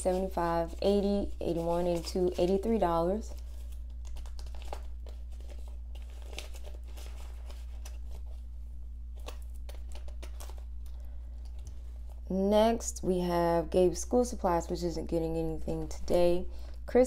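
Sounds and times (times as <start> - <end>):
plastic and paper crinkling: 0.0 - 8.5, 9.1 - 12.2.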